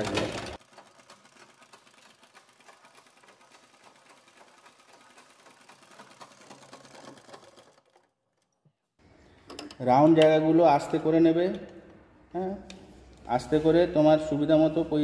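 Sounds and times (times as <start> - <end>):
sewing machine needle ticking: 0.0 - 8.1.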